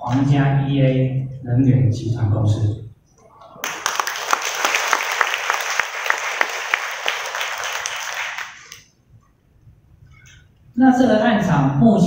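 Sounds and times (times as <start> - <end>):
crowd clapping: 3.6 - 8.9.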